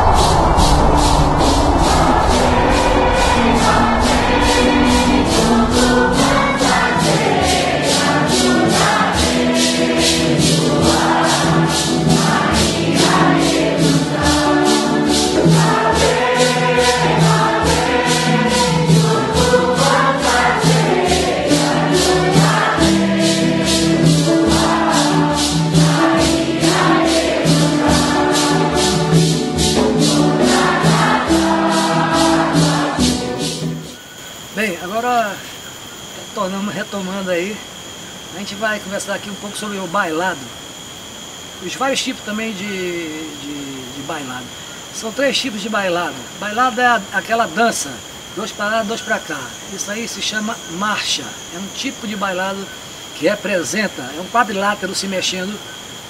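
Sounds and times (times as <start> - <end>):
rattle shaken in steady beat: 0.0 - 50.8
group singing a hymn: 0.0 - 55.9.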